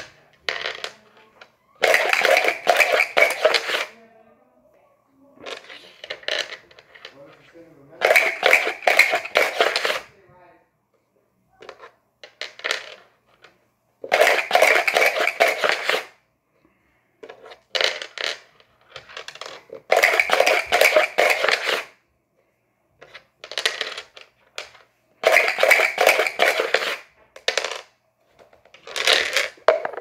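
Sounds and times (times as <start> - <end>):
dice rattling in a cup: 0.0 - 4.0, 5.4 - 7.3, 8.0 - 10.1, 11.6 - 16.1, 17.2 - 21.9, 23.0 - 30.0.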